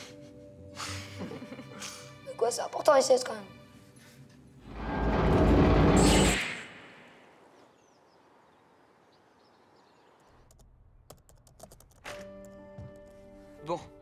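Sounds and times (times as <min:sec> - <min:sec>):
loud rushing noise: 0:04.7 - 0:07.3
laptop keyboard typing: 0:10.5 - 0:12.1.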